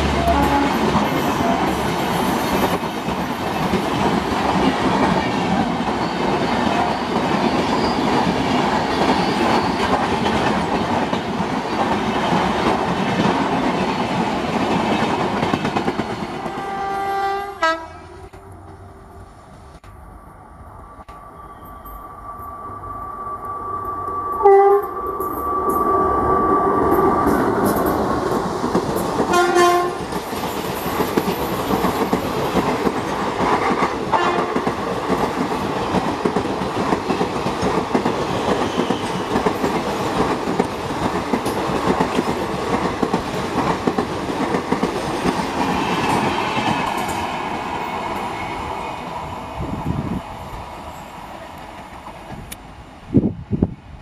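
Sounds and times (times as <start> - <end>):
train horn blasts: 0.0 - 1.8, 16.4 - 19.0, 24.4 - 24.9, 29.3 - 30.0, 34.1 - 34.6
train wheels clattering past: 26.8 - 49.2.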